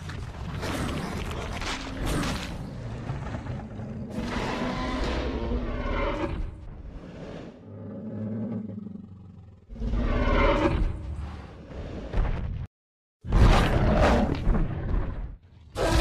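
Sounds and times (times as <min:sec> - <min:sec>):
dinosaur roars: 0:00.6 - 0:12.0.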